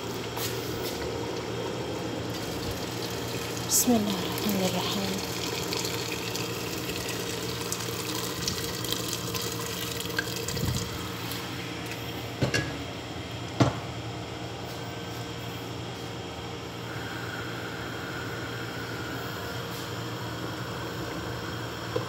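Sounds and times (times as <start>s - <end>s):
water pouring into pot: 2.3s - 11.1s.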